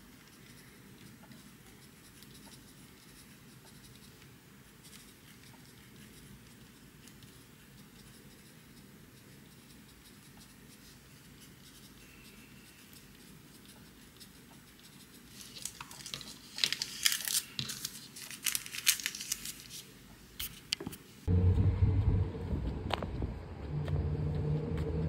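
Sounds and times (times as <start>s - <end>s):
pencil writing on paper: 0.2s - 15.4s
paper folded and crinkling: 15.3s - 20.8s.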